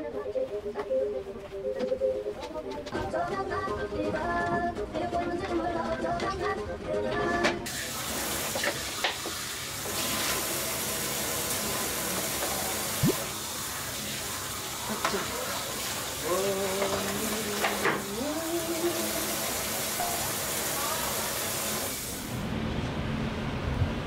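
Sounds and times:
faucet running into metal sink: 0:07.7 - 0:22.1.

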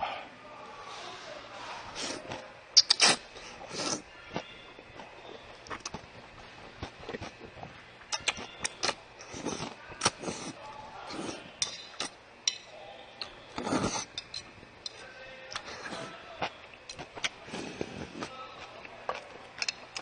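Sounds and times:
noodles slurped: 0:02.8 - 0:04.0, 0:08.2 - 0:12.2, 0:13.5 - 0:14.2
chopsticks and spoon clinking bowl: 0:11.1 - 0:16.0.

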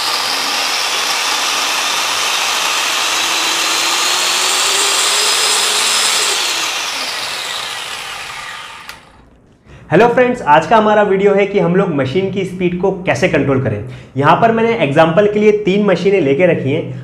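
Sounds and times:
marble cutter motor whine: 0:00.0 - 0:09.2.

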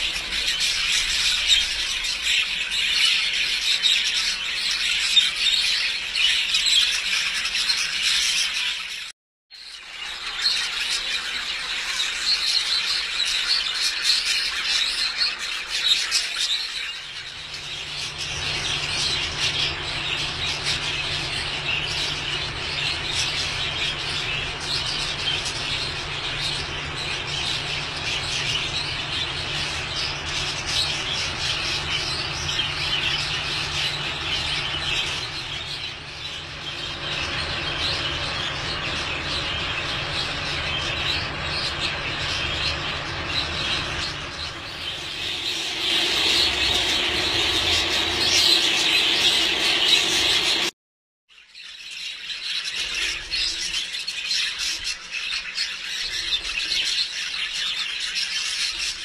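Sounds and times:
budgerigars chattering and chirping: 0:00.0 - 0:09.1, 0:09.7 - 0:50.7, 0:51.3 - 0:59.0
steady low hum: 0:17.0 - 0:50.8.

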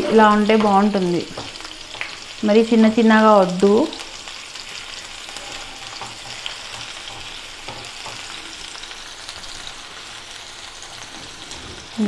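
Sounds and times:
onions sizzling in a frying pan: 0:00.0 - 0:12.0
spatula tapping on pan: 0:06.0 - 0:08.3.

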